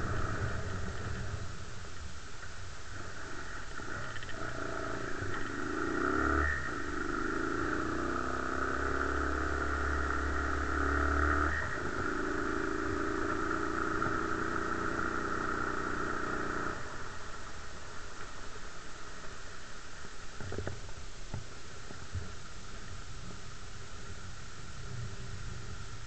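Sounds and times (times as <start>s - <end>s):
quad bike engine running: 0.0s - 1.6s, 2.9s - 19.5s.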